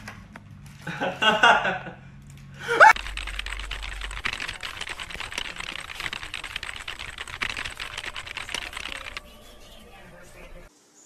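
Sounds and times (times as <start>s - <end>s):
rapid light clicking and tapping: 2.3s - 9.4s.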